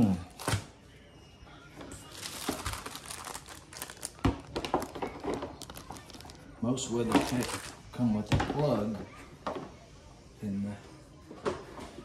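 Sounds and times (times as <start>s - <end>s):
plastic bag crinkling: 2.0s - 7.8s.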